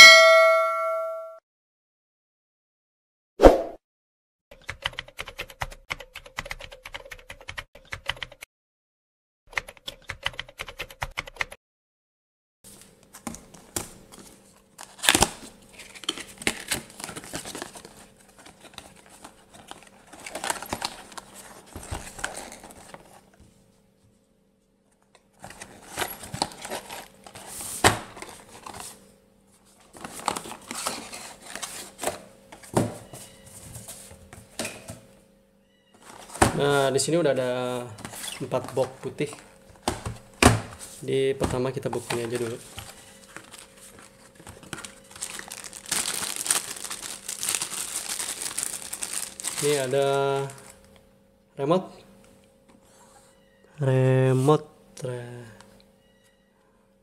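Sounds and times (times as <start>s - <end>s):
cardboard box rustling: 14.1s - 23.3s, 25.4s - 29.0s, 41.9s - 49.9s.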